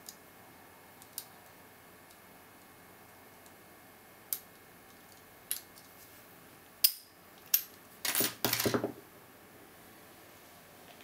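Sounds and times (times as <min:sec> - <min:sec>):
metal clatter on table: 0:08.0 - 0:09.0.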